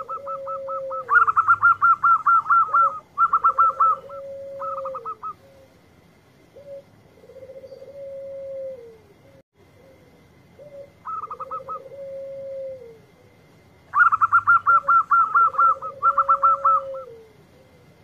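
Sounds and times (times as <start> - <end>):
dove cooing: 0.0 - 5.9, 6.5 - 18.0.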